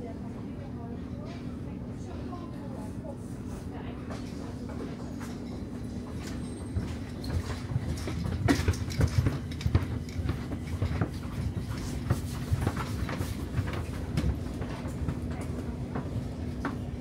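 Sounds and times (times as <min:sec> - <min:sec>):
train rumble and hum: 0:00.0 - 0:17.0
wheels clicking on track: 0:05.2 - 0:16.8.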